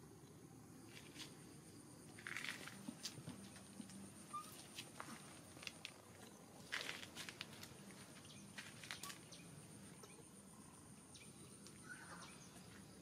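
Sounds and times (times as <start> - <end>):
high insect whine: 0.0 - 13.0.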